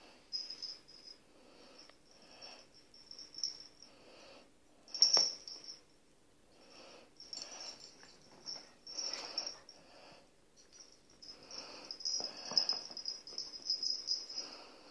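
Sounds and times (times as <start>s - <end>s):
dogs breathing and snuffling: 6.8s - 14.9s.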